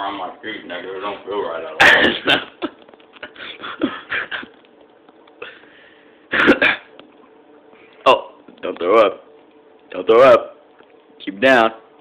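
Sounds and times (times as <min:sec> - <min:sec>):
man coughing: 0:01.8 - 0:02.6, 0:06.3 - 0:06.9.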